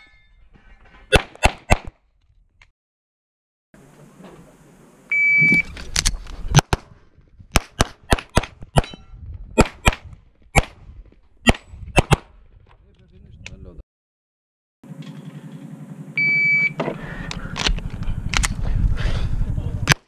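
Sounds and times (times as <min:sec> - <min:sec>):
shot timer beep: 0:05.1 - 0:05.7, 0:16.2 - 0:16.8
pistol shots: 0:07.5 - 0:09.0, 0:09.6 - 0:10.8, 0:11.4 - 0:12.3.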